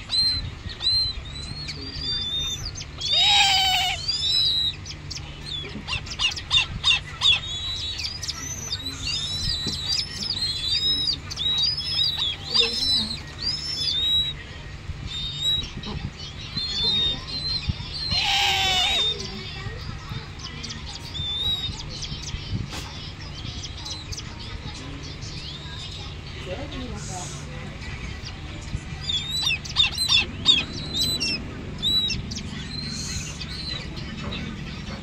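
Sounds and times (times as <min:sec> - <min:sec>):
harsh bird call: 0:00.0 - 0:14.5, 0:15.1 - 0:24.6
electric fan hum: 0:00.0 - 0:35.0
nestlings chirping: 0:00.0 - 0:35.0.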